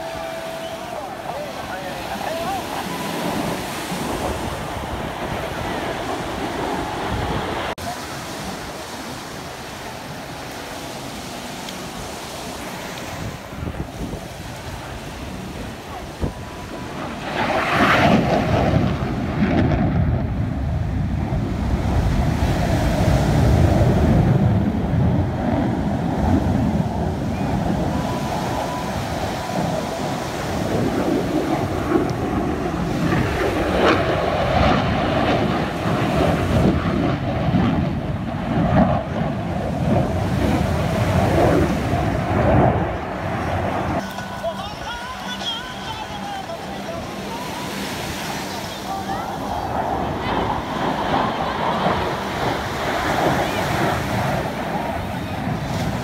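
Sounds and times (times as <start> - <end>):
distant fighter jet roar: 0.0 - 44.4, 45.8 - 56.0
wind rumbling on microphone: 0.0 - 45.0, 45.6 - 56.0.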